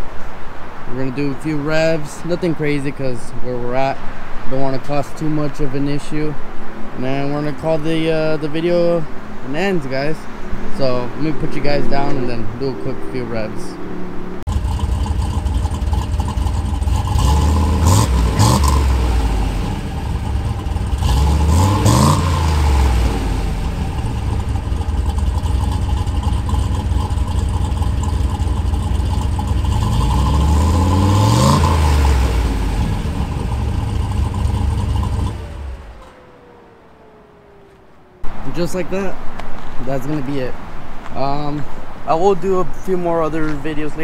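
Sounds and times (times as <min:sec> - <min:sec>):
engine revving and idling: 0:14.0 - 0:38.9.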